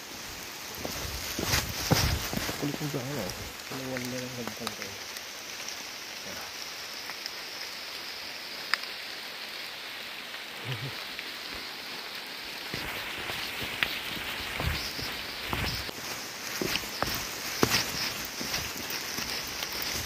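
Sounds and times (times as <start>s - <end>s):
steady hiss: 0.0s - 20.0s
rustling: 0.7s - 3.5s, 12.6s - 20.0s.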